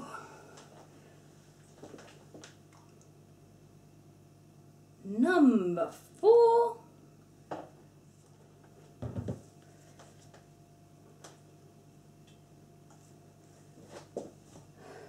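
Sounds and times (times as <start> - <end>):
faint steady hum: 0.0 - 15.0
thumps on wooden table: 9.0 - 9.4.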